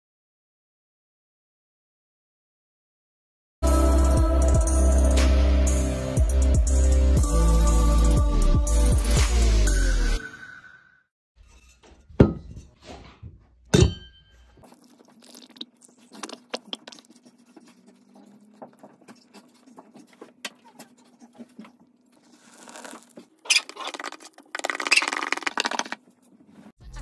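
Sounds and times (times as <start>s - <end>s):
milk bubbling while frothing: 14.6s - 26.0s.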